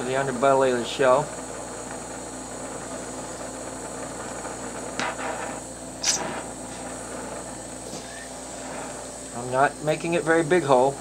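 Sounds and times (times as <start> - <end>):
torch flame hissing: 0.0 - 11.0
brief sharp sounds: 6.0 - 6.5.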